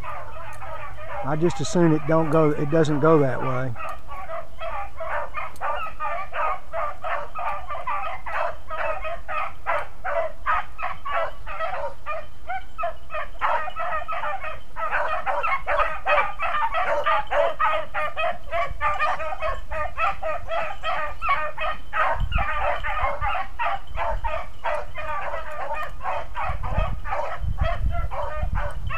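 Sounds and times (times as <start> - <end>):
pack of hounds baying: 0.0 - 28.9.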